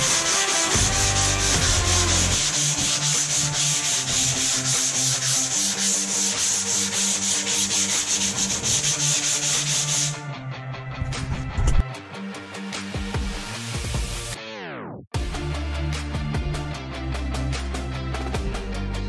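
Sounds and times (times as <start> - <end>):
electric sander hissing: 0.0 - 6.5.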